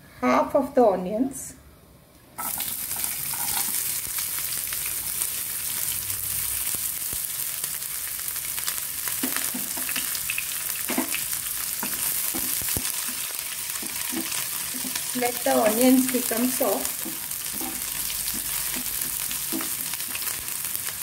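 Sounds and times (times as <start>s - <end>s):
onions sizzling in hot oil: 2.4s - 21.0s
spatula tapping a pan: 9.2s - 10.2s, 11.8s - 15.0s, 17.0s - 20.3s
wooden spatula stirring: 10.9s - 20.5s.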